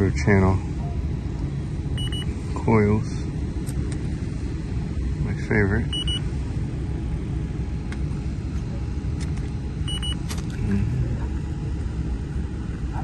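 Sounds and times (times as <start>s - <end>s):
steady low rumble: 0.0s - 13.0s
leak detector high beep: 2.0s - 2.3s, 5.9s - 6.2s, 9.8s - 10.2s.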